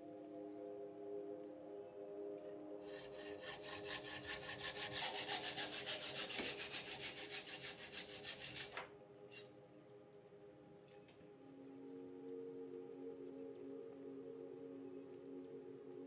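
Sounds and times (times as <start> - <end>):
soft music tones: 0.0 - 16.0
hacksaw cutting metal tube: 2.8 - 9.4.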